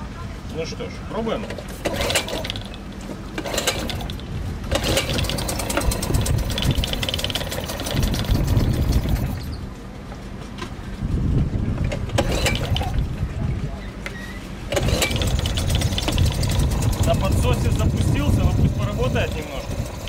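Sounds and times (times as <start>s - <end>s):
starter cord pulls: 1.4s - 2.8s, 3.4s - 9.5s, 11.9s - 13.1s, 14.7s - 20.0s
outboard engine running unevenly: 1.7s - 10.0s, 12.0s - 20.0s.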